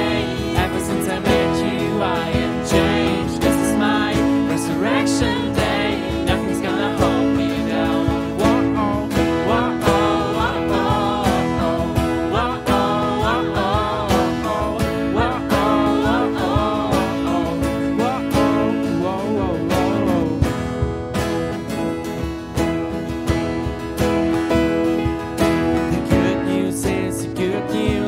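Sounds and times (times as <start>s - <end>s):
voices singing: 0.0s - 20.5s
acoustic guitar strumming: 0.0s - 28.0s
keyboard chords: 0.0s - 28.0s.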